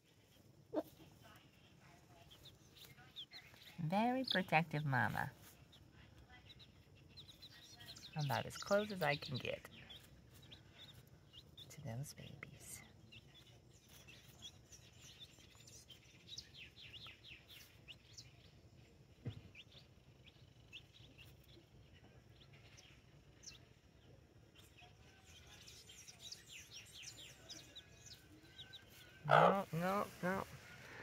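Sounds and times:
chicks peeping: 0.1s - 31.0s.

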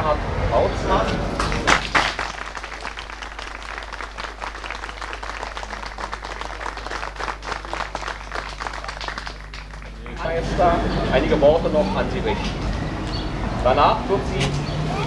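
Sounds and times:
audience applauding: 1.4s - 10.3s.

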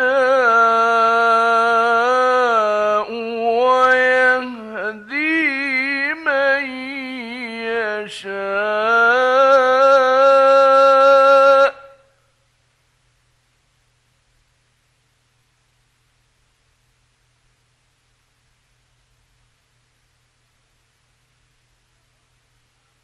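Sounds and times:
man chanting recitation: 0.0s - 12.0s.

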